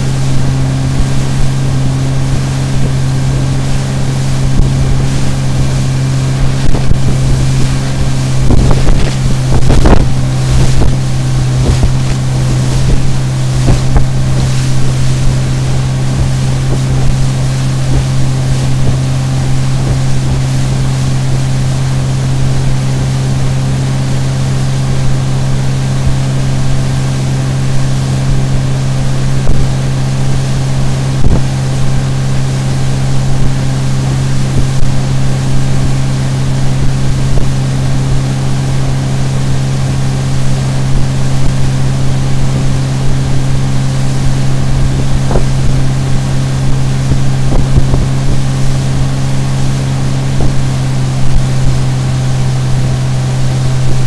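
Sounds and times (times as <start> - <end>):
outboard motor drone: 0.0 - 54.0
water rushing past hull: 0.0 - 54.0
wind on microphone: 0.0 - 54.0.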